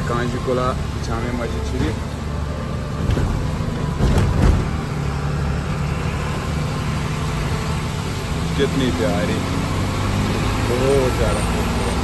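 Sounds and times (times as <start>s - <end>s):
truck engine running: 0.0s - 12.0s
knocks and rattles: 3.0s - 5.0s.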